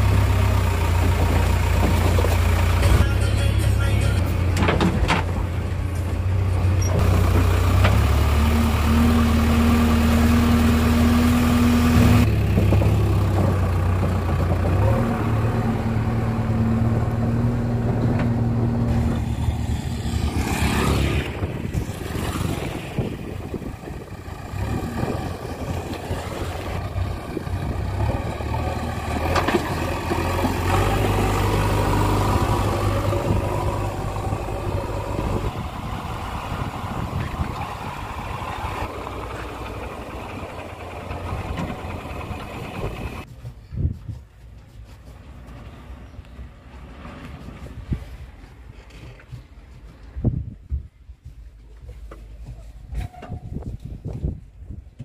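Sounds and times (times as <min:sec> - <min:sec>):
diesel engine running: 0:00.0 - 0:43.3.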